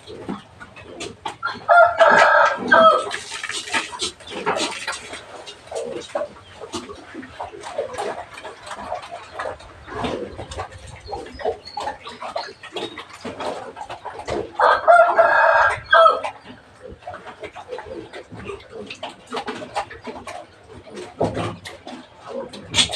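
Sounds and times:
rooster crowing: 1.7s - 3.1s, 14.6s - 16.2s
scattered knocks and clatter: 18.3s - 22.9s.

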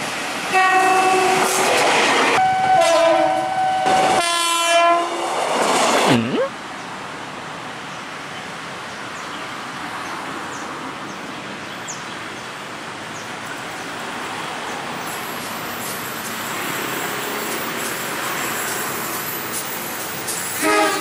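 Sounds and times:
train wheels on rails: 0.0s - 4.3s, 5.1s - 6.1s, 13.3s - 21.0s.

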